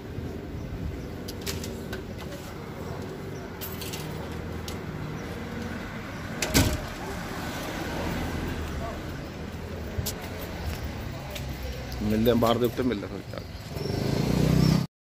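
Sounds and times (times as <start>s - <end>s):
low street rumble: 0.0s - 14.9s.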